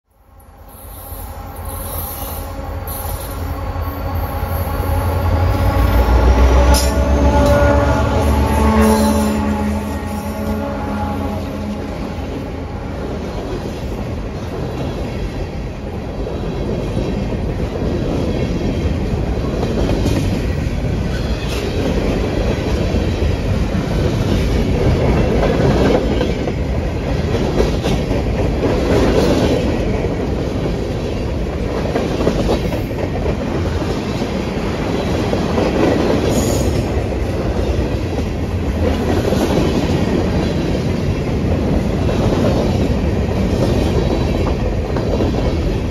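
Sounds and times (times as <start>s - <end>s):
train wheels rumbling on rails: 0.2s - 45.9s.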